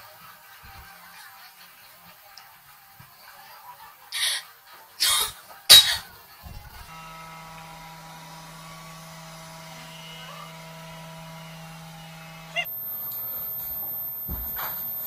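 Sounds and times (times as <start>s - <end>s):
robot vacuum motor hum: 6.4s - 15.0s.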